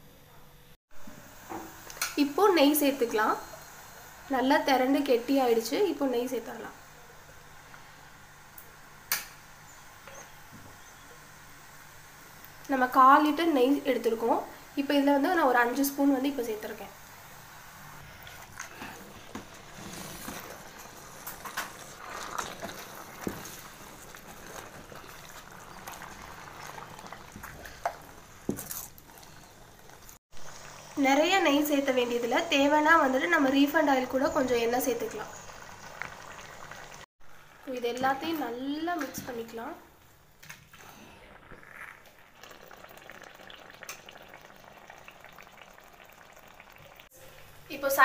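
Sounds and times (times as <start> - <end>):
faint crackle of frying: 1.3 - 48.0
ladle scraping pan: 18.2 - 30.1.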